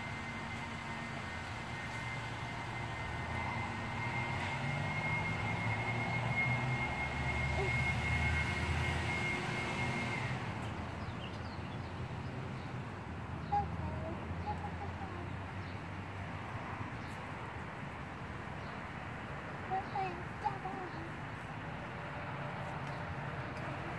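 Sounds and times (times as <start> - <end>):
steady high-pitched tone: 0.0 - 10.6
low engine rumble: 0.0 - 23.9.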